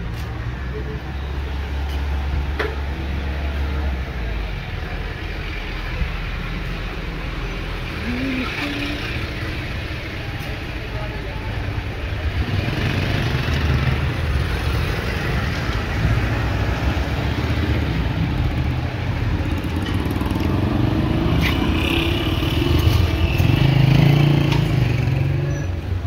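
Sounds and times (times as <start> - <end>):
street traffic: 0.0 - 26.0
motorcycles passing: 7.1 - 26.0.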